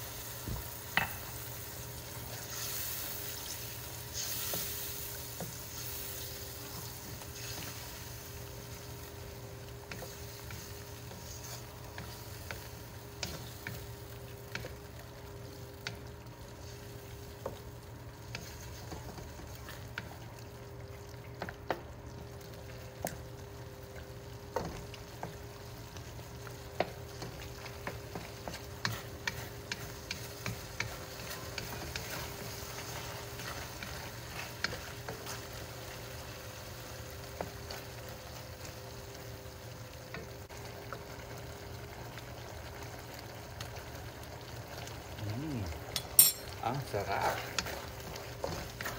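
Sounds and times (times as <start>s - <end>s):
meat sizzling in a pan: 0.0s - 48.9s
wooden spatula scraping a pan: 9.9s - 13.8s, 27.2s - 35.9s.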